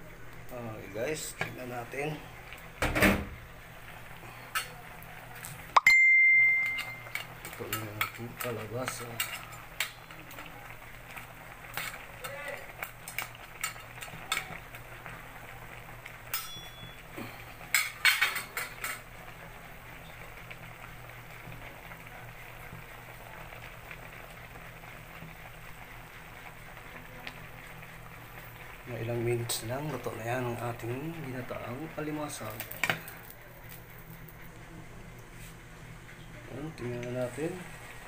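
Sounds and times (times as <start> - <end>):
pot simmering: 0.0 - 38.0
metal spatula clinking in a pan: 5.8 - 8.2, 16.3 - 17.0.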